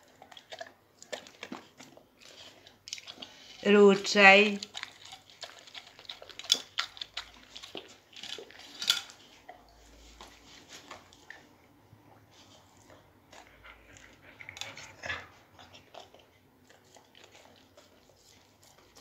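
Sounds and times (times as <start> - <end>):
dog licking plate: 0.0 - 8.7, 12.6 - 19.0.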